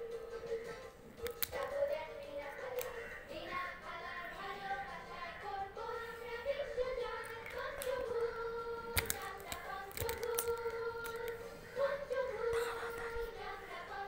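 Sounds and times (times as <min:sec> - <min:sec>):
sharp clicks: 0:01.2 - 0:01.8, 0:07.1 - 0:08.2, 0:08.9 - 0:11.4
child singing: 0:01.5 - 0:14.0.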